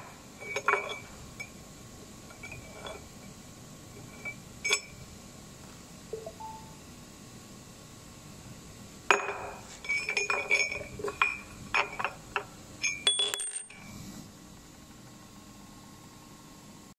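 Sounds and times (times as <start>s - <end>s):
metal rod and tube clinking: 4.1s - 5.0s, 9.8s - 12.1s.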